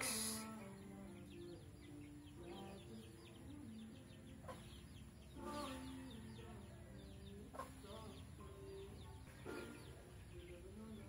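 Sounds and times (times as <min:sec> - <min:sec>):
chicks peeping: 0:00.0 - 0:11.0.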